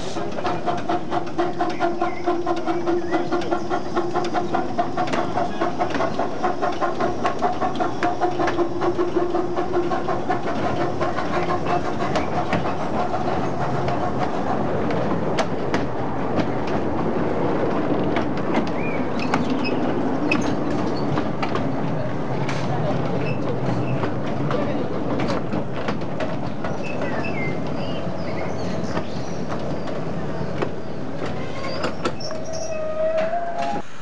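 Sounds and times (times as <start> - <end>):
steam locomotive exhaust beats: 0.0 - 34.0
carriages rolling past: 0.2 - 32.8.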